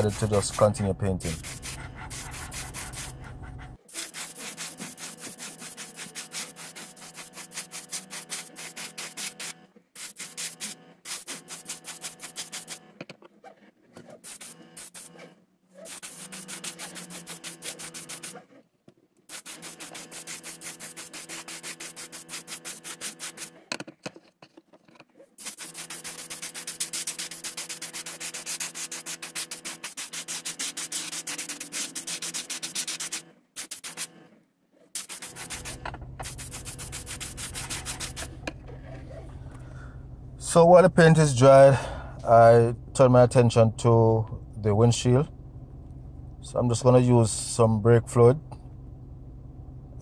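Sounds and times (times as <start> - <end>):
steady low hum: 0.0 - 3.9, 35.2 - 50.0
airbrush hissing in pulses: 0.0 - 12.8, 14.2 - 18.4, 19.3 - 23.6, 25.4 - 34.1, 35.0 - 38.4.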